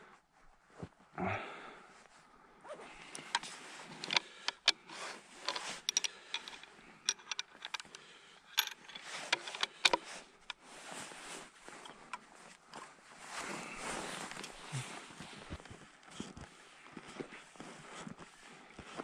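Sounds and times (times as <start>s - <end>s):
skis swishing over crusted snow: 12.4s - 16.3s.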